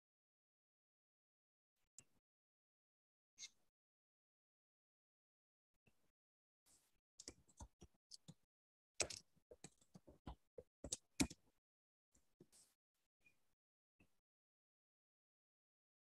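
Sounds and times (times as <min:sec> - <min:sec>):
faint clicks and taps: 0:07.2 - 0:08.4, 0:09.0 - 0:11.5.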